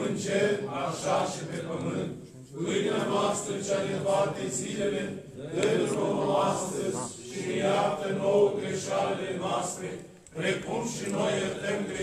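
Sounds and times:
men chanting: 0:00.0 - 0:12.0.

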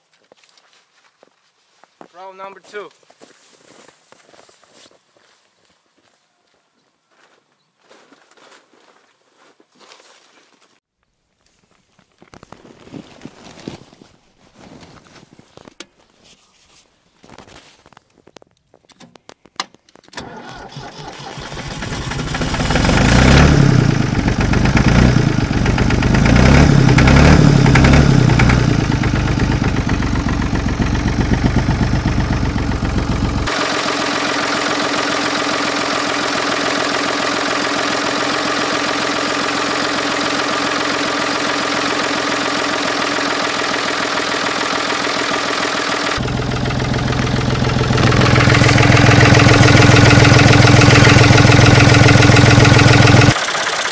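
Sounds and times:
tractor engine starting and idling: 0:20.1 - 0:53.9.

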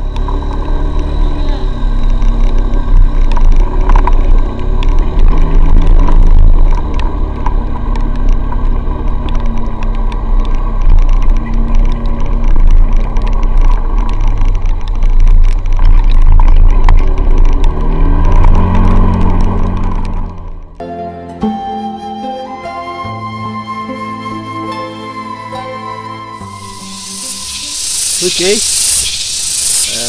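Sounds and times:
wind rumble on microphone: 0:00.0 - 0:20.8.

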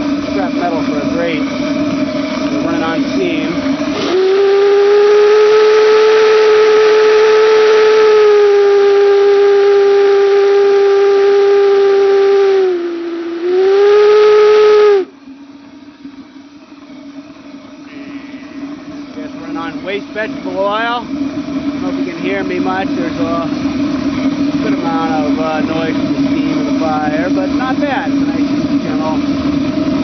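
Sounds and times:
burner fire roaring: 0:00.0 - 0:30.0
steam hissing: 0:00.0 - 0:30.0
steam whistle blowing: 0:02.7 - 0:15.2.

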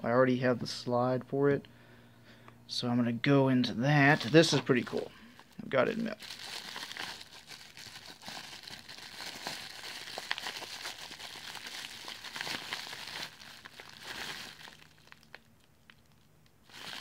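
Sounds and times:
bubble wrap crackling: 0:04.0 - 0:17.0.

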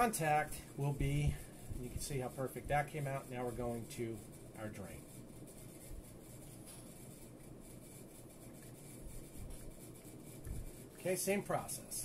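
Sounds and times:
low room noise: 0:00.0 - 0:12.0.

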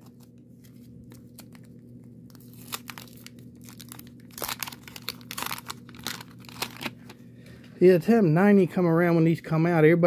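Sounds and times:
waxed paper wrapper tearing: 0:01.1 - 0:07.0.

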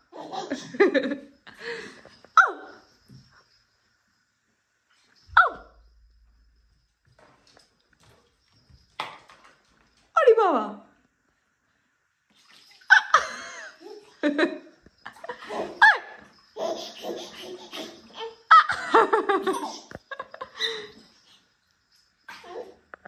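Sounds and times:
water splashing in bathtub: 0:07.1 - 0:10.2, 0:12.3 - 0:18.2
laughter and high squeals: 0:12.9 - 0:21.4.

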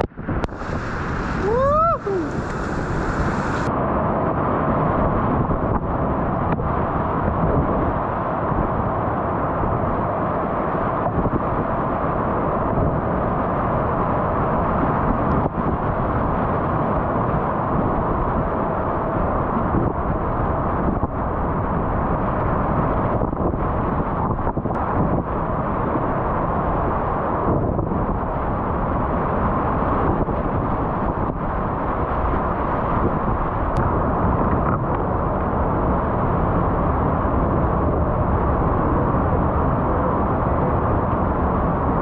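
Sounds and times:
whitewater rapids rushing: 0:00.5 - 0:03.7.

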